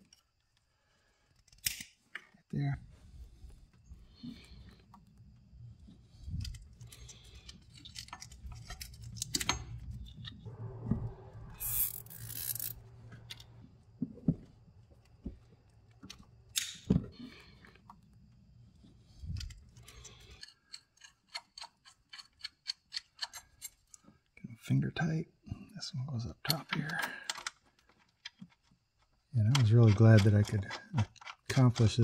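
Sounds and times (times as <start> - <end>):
low steady hum: 2.6 - 20.4
small clicks and knocks: 19.1 - 24.1, 26.4 - 32.0
evenly spaced clicks: 19.4 - 23.7.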